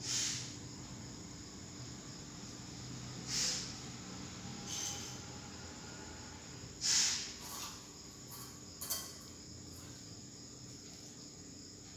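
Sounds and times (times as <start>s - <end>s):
hissing noise bursts: 0.0s - 0.6s, 3.2s - 3.8s, 6.8s - 7.4s.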